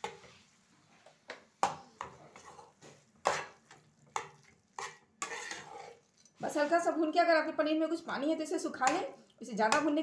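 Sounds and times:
spatula scraping and knocking a pan: 1.6 - 6.6.

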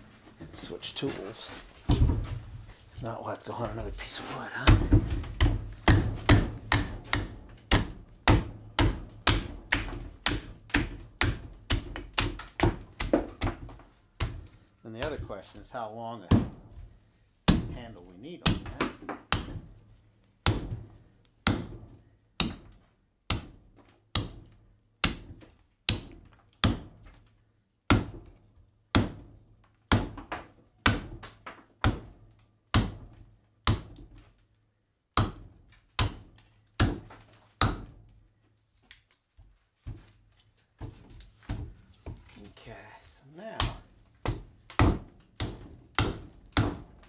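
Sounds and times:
hatchet chopping wood: 4.6 - 15.2, 16.3 - 16.8, 17.5 - 17.8, 18.4 - 19.7, 20.4 - 27.2, 27.9 - 29.3, 29.9 - 34.2, 35.2 - 38.0, 43.5 - 47.0.

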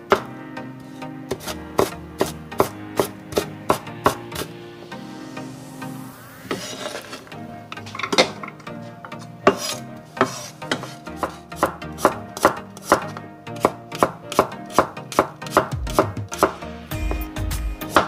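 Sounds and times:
knife chopping on wooden board: 1.3 - 4.5, 9.5 - 16.6.

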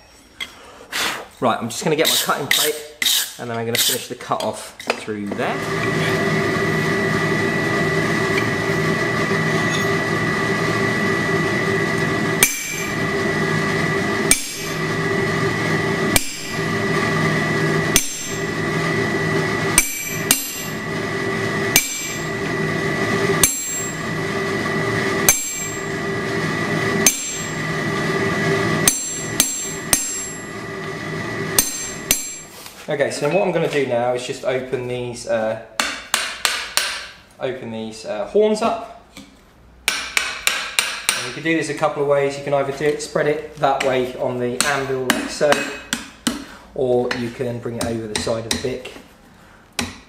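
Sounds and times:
hammer striking chisel on hot steel: 2.0 - 5.0, 12.4 - 12.9, 14.2 - 14.8, 16.1 - 16.6, 17.9 - 18.4, 19.7 - 20.8, 21.7 - 22.2, 23.4 - 24.0, 25.2 - 25.8, 27.0 - 27.5, 28.8 - 30.4, 31.5 - 32.5, 35.8 - 37.2, 39.2 - 41.4, 44.6 - 46.5, 47.8 - 48.8, 49.8 - 50.0
steady humming drone: 5.5 - 32.6.

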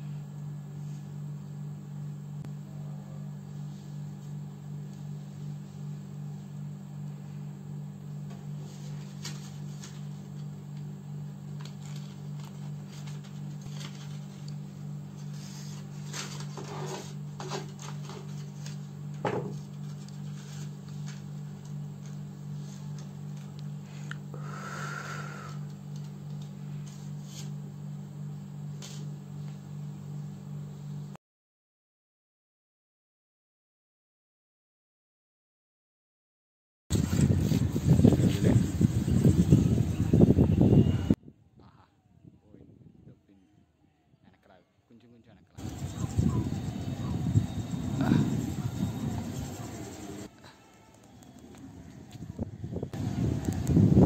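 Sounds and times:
steady low hum: 0.0 - 31.2, 36.9 - 54.0
paper crackling: 8.6 - 18.9.

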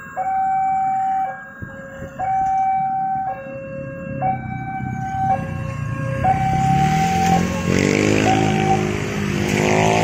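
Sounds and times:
level crossing alarm two-tone signal: 0.0 - 9.0
motorbike engines running: 4.3 - 10.0.

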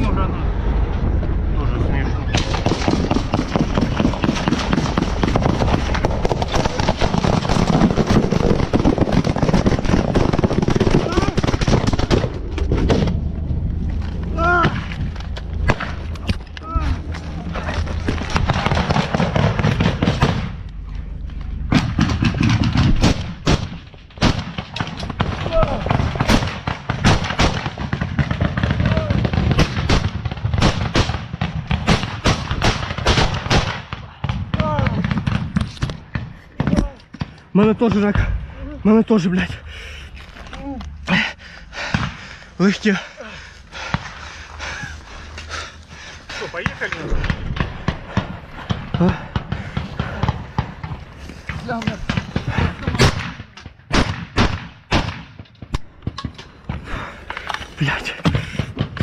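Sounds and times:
armoured vehicle rumbling: 0.0 - 27.1
rustling and movement: 2.2 - 54.2
rapid gunfire: 2.4 - 12.5, 18.3 - 20.6, 21.7 - 35.6
rifle shots: 2.4 - 13.2, 21.7 - 36.8, 51.8 - 56.4.

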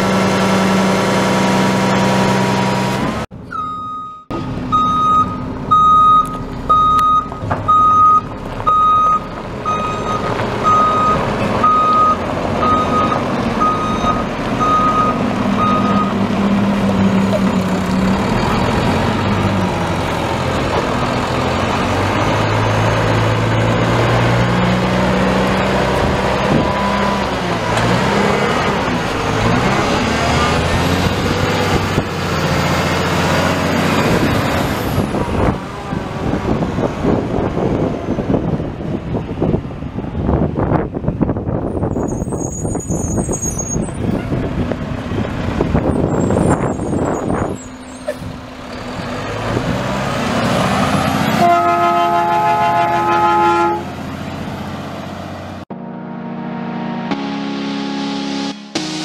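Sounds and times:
diesel engine revving: 0.0 - 3.4, 4.3 - 59.0
truck reverse alarm beeping: 3.4 - 16.3, 26.5 - 27.3.

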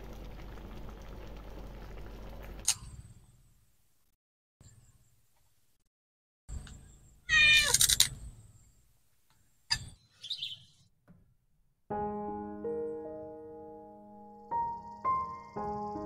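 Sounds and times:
cat meowing: 7.3 - 7.9
soft piano music: 11.9 - 16.0.

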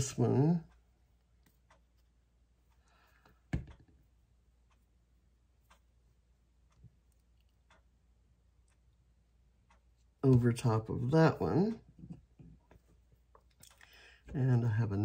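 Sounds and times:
faint taps and clicks: 0.7 - 4.1.

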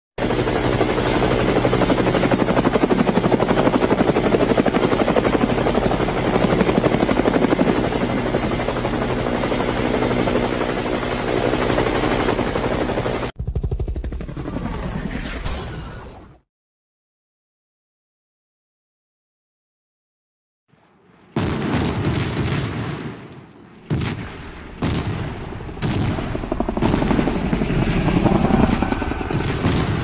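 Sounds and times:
helicopter rotor beating: 0.2 - 15.4, 24.6 - 30.0.

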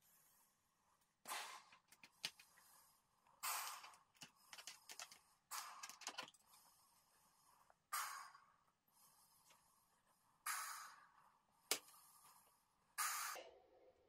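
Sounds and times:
woman breathing into balloon: 10.4 - 11.2.

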